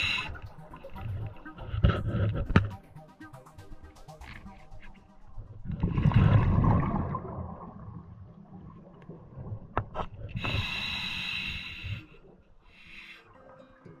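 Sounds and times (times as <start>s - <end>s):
exhaled bubbles burbling: 5.6s - 9.8s
regulator inhalation hiss: 10.4s - 13.2s.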